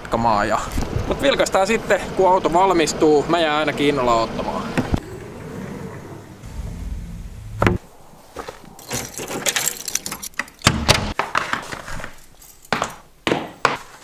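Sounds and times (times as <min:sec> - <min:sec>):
low rumble: 0:05.0 - 0:07.9
heavy thud: 0:06.5 - 0:07.8
clicks clatter and knocks: 0:08.8 - 0:11.5.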